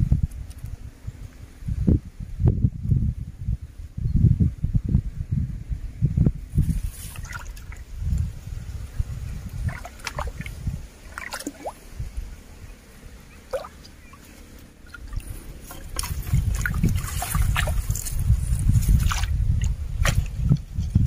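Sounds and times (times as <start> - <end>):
low rumbles: 0.0 - 21.0
water splashing and sloshing: 6.7 - 8.3, 9.4 - 12.1, 13.3 - 21.0
water drips and plops: 9.6 - 11.8, 13.5 - 14.0, 14.8 - 18.1.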